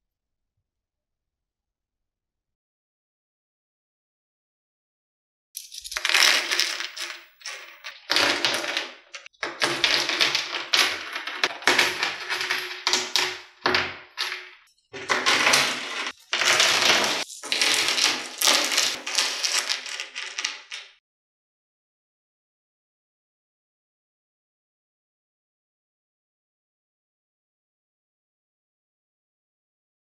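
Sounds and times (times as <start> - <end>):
pebbles clattering and scraping: 5.6 - 21.0.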